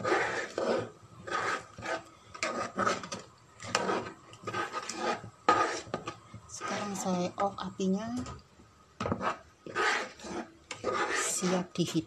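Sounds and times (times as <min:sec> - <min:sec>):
spatula scraping porridge in pan: 0:00.0 - 0:07.5, 0:09.0 - 0:12.0.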